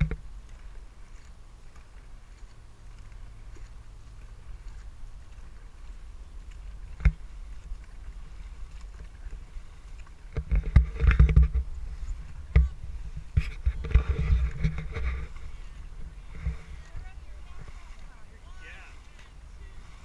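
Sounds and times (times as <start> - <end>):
wind and water rumble: 0.0 - 20.0
water splashes: 12.0 - 20.0.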